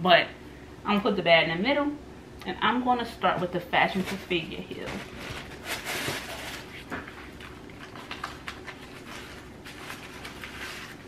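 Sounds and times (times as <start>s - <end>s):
low room hum: 0.0s - 11.0s
rustling: 4.8s - 11.0s.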